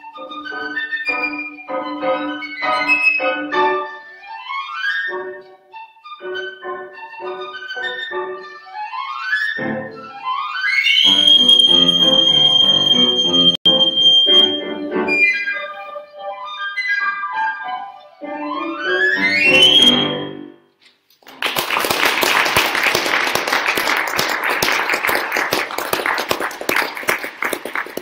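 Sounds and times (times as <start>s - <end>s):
piccolo and piano piece: 0.0s - 20.6s
audience applauding: 21.2s - 28.0s.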